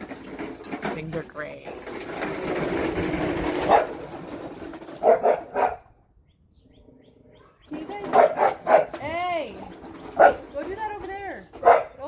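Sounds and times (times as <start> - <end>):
lawnmower engine: 0.0 - 6.2, 7.4 - 12.0
dog barking: 3.7 - 4.0, 5.0 - 5.9, 8.1 - 9.0, 10.2 - 10.5, 11.6 - 12.0.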